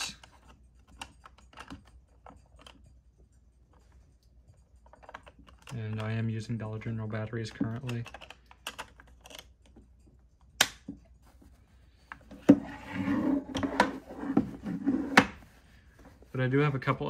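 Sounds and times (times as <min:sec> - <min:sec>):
rustling: 0:11.0 - 0:17.0.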